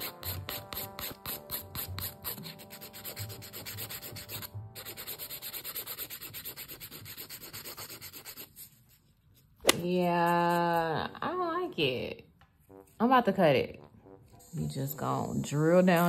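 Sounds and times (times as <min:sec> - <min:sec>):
nail file rasping: 0:00.0 - 0:08.7, 0:09.7 - 0:10.9.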